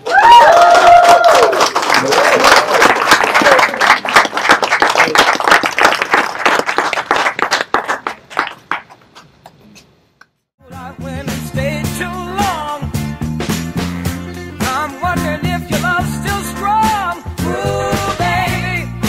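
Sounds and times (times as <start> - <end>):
high whoops: 0.0 - 1.7
crowd applauding and cheering: 0.0 - 9.0.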